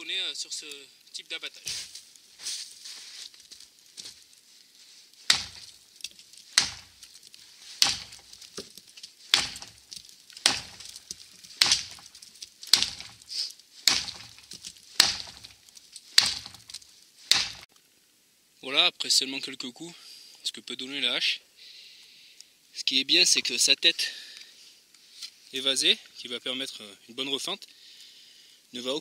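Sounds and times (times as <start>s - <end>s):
axe chopping tree: 5.3s - 17.7s.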